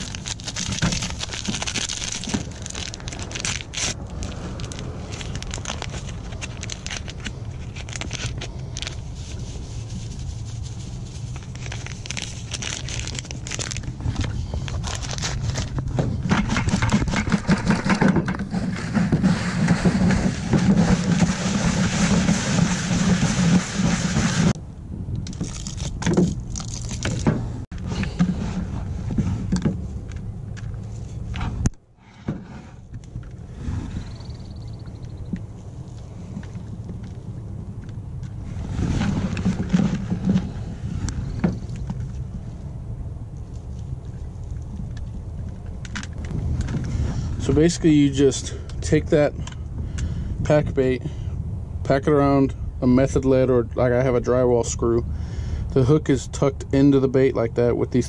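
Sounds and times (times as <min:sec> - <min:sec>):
paper packet rustling: 0:00.0 - 0:24.6, 0:25.4 - 0:27.3
breadcrumbs scraped around bucket: 0:16.4 - 0:24.6
low rumble: 0:32.6 - 0:48.8.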